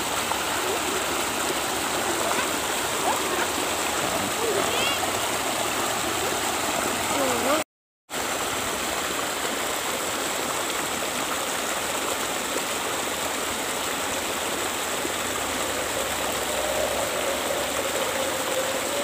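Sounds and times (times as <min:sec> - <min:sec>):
river rushing over stones: 0:00.0 - 0:19.0.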